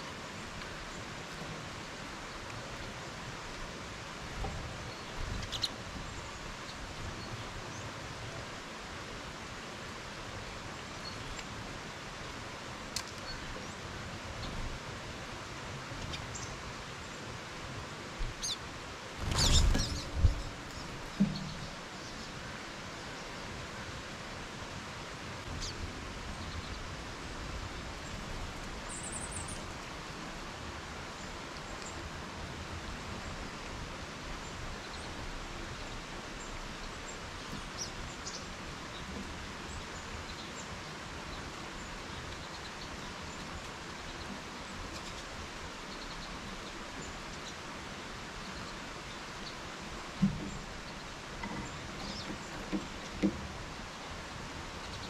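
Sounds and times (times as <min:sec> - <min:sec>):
outdoor background noise: 0:00.0 - 0:55.0
faint songbird chirps: 0:04.4 - 0:08.4, 0:16.0 - 0:17.3, 0:18.3 - 0:23.5, 0:27.7 - 0:29.9, 0:34.4 - 0:47.6, 0:48.3 - 0:54.1, 0:54.7 - 0:55.0.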